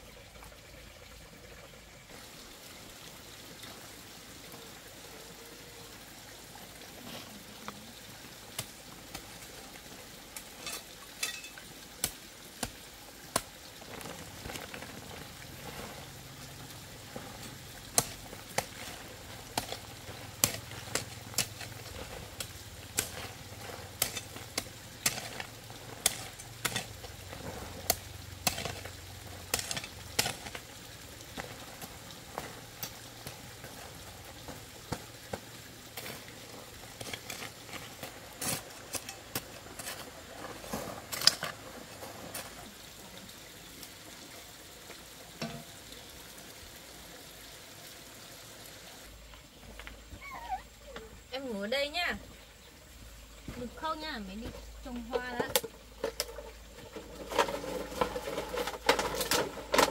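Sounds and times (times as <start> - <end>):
food sizzling in a pan: 6.4 - 39.2, 42.5 - 49.1.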